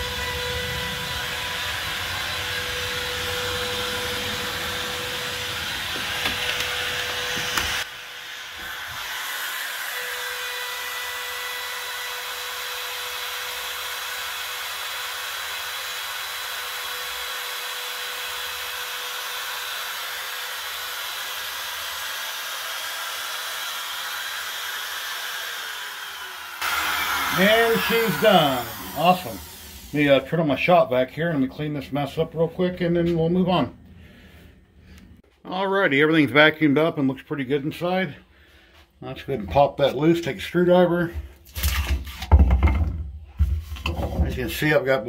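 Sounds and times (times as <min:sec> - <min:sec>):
router motor whine cutting wood: 0:00.0 - 0:30.3.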